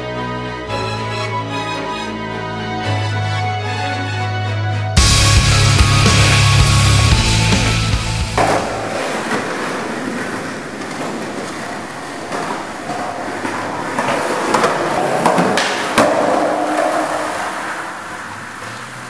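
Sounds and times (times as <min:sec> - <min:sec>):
skateboard wheels rolling on concrete: 0:05.0 - 0:19.0
skateboard clacks: 0:05.9 - 0:19.0.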